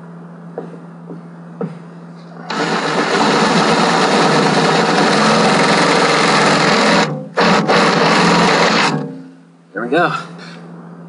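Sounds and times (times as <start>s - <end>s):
cordless drill boring: 2.4s - 9.0s.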